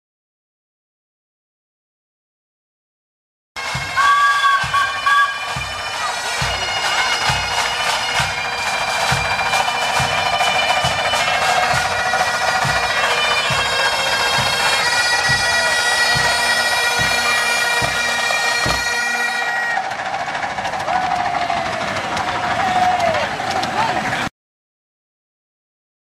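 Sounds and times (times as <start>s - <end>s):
bagpipes playing melody: 3.6s - 20.2s
snare drums: 3.6s - 24.2s
bass drum beating: 11.6s - 18.9s.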